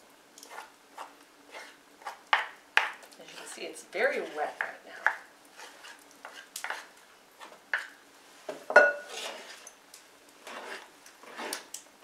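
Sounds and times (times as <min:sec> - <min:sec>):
spoon scraping a bowl: 0:00.4 - 0:02.2, 0:03.2 - 0:03.6, 0:05.5 - 0:07.9, 0:08.8 - 0:09.7, 0:10.4 - 0:11.7
spoon swishing through dough: 0:00.4 - 0:02.2, 0:03.2 - 0:04.6, 0:05.5 - 0:07.6, 0:09.0 - 0:09.8, 0:10.4 - 0:11.7.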